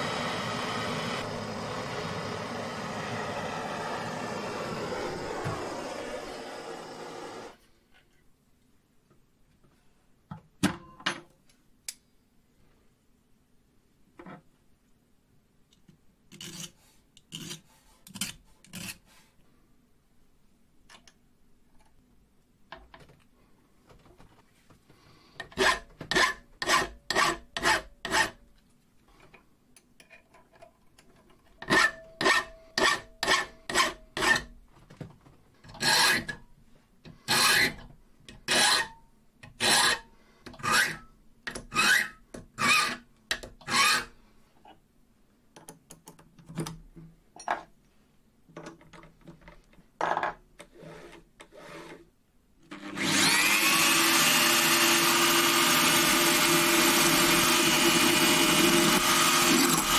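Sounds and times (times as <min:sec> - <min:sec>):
power tool motor running: 0:00.0 - 0:07.6, 0:52.8 - 0:59.9
file stroking on steel: 0:25.5 - 0:28.4, 0:31.6 - 0:34.5, 0:35.8 - 0:36.3, 0:37.2 - 0:37.8, 0:38.5 - 0:39.0, 0:39.6 - 0:41.0, 0:41.7 - 0:43.0, 0:43.6 - 0:44.2.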